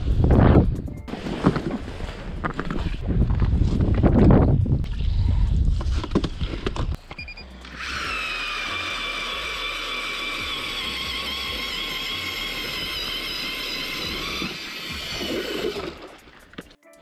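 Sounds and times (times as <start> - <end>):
ice auger motor whine: 7.6 - 16.0.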